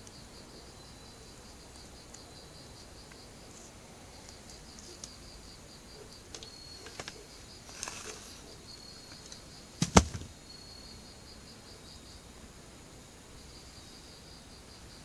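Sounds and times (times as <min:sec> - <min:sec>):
crickets chirping: 0:00.0 - 0:15.0
brief rustle: 0:06.4 - 0:08.4
sharp loud knock: 0:09.8 - 0:10.3.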